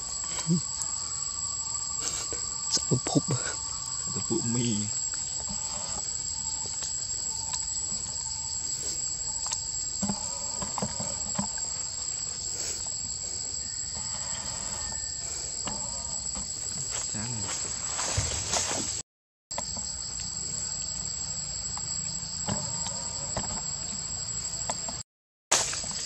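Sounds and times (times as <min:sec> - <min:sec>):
distant calls: 0:00.0 - 0:12.8, 0:13.6 - 0:16.3
insects droning: 0:00.0 - 0:26.0.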